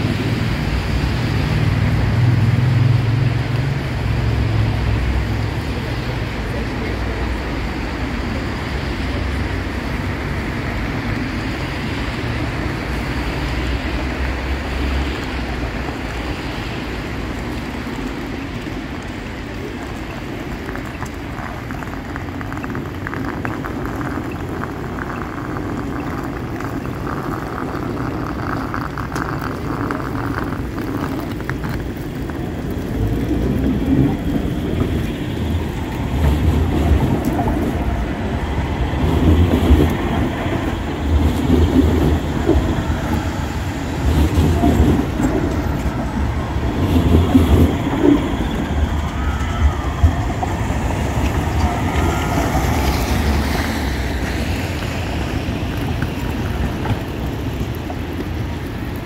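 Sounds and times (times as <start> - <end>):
low engine rumble: 0.0 - 59.0
tram rumbling past: 0.0 - 59.0
tyres hissing on wet road: 0.0 - 59.0.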